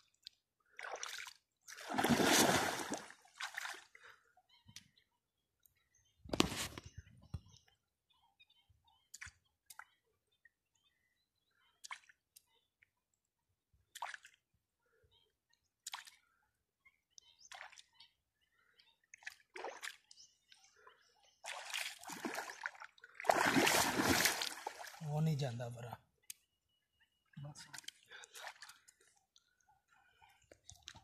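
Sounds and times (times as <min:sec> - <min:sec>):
hand sloshing in water: 0:00.8 - 0:03.8, 0:21.4 - 0:25.0
objects splashing into water: 0:00.8 - 0:03.8, 0:21.5 - 0:25.0.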